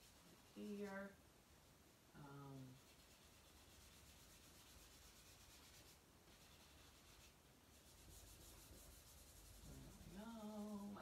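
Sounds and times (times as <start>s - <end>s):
pastel stick rubbing on paper: 2.6s - 11.0s.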